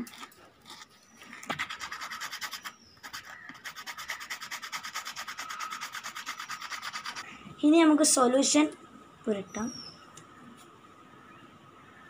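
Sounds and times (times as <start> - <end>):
sandpaper scraping rubber: 1.5 - 7.2.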